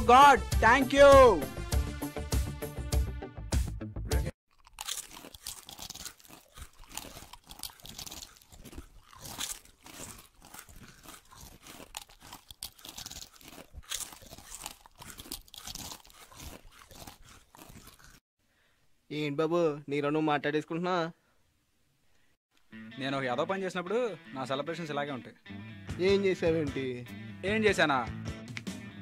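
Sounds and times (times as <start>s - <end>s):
potato chips crunching while chewed: 4.5s - 18.2s.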